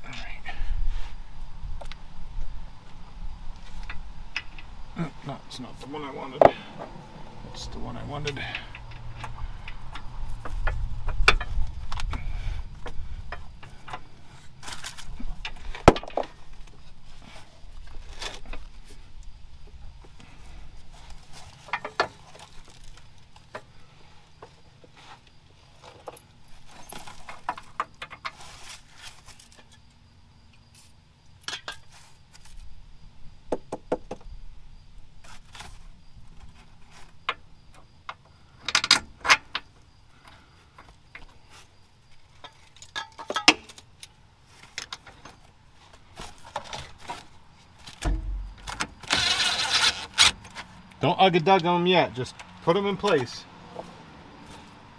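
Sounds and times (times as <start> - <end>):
metal tools clinking: 15.4 - 16.4.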